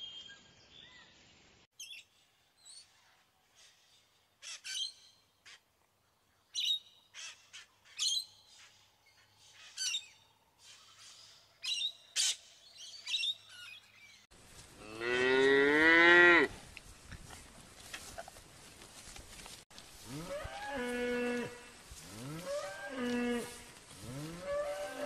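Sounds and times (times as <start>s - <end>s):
birds chirping: 0.0s - 14.3s
cow mooing: 14.8s - 16.5s, 20.0s - 25.0s.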